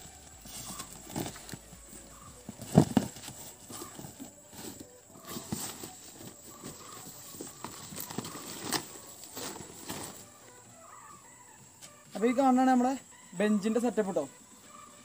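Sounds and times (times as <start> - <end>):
scraping rustles: 0.0 - 10.6
cardboard box being opened: 0.6 - 10.2
cardboard thumps: 2.4 - 3.9.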